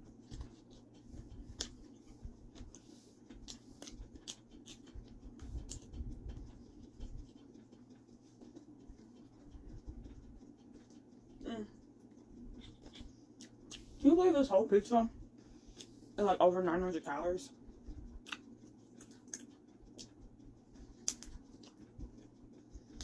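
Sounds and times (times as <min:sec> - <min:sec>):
person chewing pizza: 0:00.0 - 0:14.0, 0:15.2 - 0:16.2, 0:17.6 - 0:23.0.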